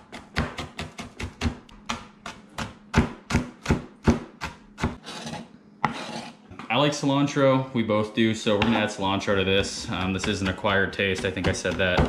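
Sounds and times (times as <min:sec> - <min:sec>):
knife chopping on cutting board: 0:00.0 - 0:06.2, 0:09.7 - 0:12.0.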